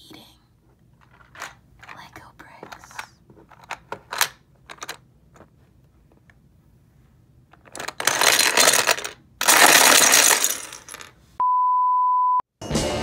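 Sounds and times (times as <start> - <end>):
plastic bricks clattering in tub: 7.5 - 11.1.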